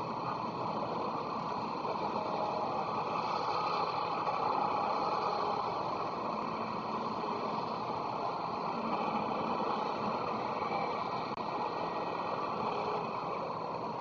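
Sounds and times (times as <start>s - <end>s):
railway station rumble and hiss: 0.0s - 14.0s.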